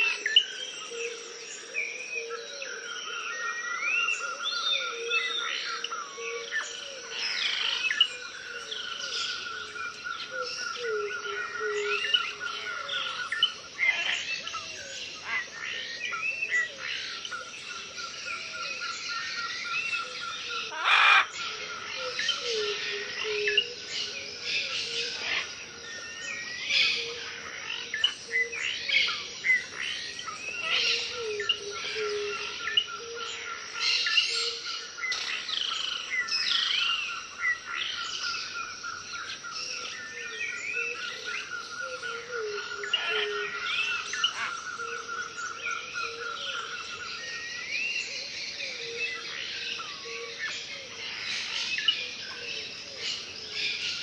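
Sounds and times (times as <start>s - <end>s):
birds chirping: 2.9s - 54.0s.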